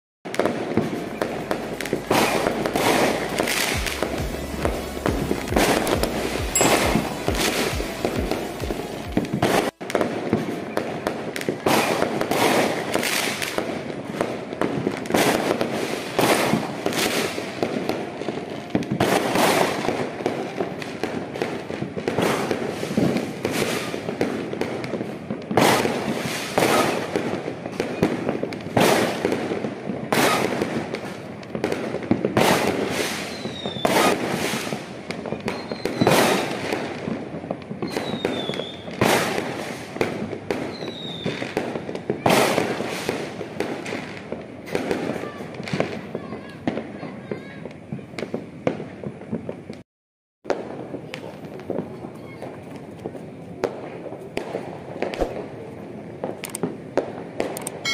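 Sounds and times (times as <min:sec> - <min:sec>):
high firework whistles: 0:00.3 - 0:13.6, 0:25.6 - 0:29.3, 0:30.1 - 0:31.2, 0:32.3 - 0:37.0, 0:37.8 - 0:44.0, 0:57.4 - 0:57.9
fireworks booms and bangs: 0:00.3 - 0:49.8, 0:50.4 - 0:57.9
rumble of echoing bursts: 0:00.8 - 0:09.7.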